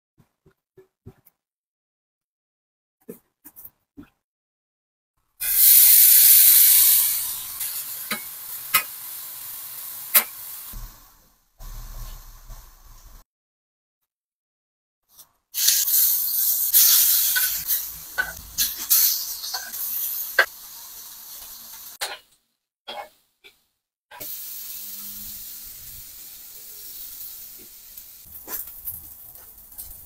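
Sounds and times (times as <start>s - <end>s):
shrimp sizzling in hot oil: 5.4s - 13.2s, 15.6s - 22.2s, 24.2s - 30.0s.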